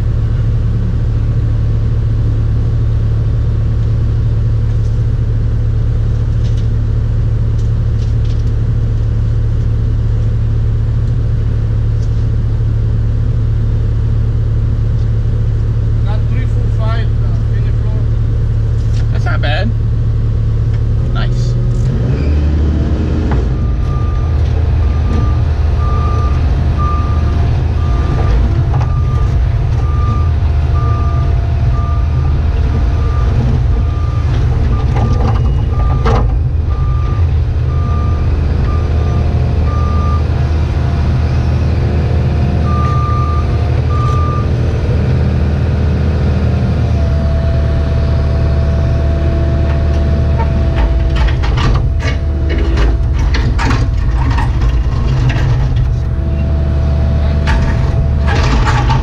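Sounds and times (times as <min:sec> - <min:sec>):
excavator diesel engine running: 0:00.0 - 0:59.0
sharp clicks and knocks: 0:28.0 - 0:30.5, 0:32.6 - 0:37.2, 0:49.7 - 0:56.2, 0:57.3 - 0:59.0.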